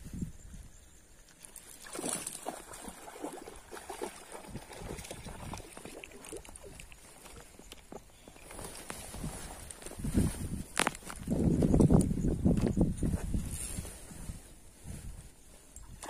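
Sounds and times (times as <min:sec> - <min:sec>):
fish splashing in water: 0:01.6 - 0:07.6.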